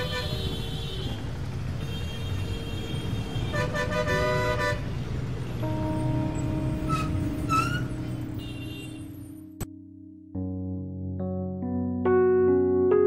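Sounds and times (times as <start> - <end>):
vehicle horns honking: 0.0 - 1.2, 1.8 - 5.0, 5.6 - 9.4
traffic engines rumbling: 0.0 - 9.6.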